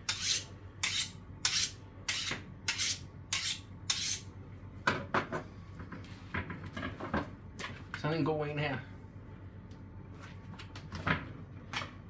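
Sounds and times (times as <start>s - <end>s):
knife scraping on honing steel: 0.0s - 4.3s.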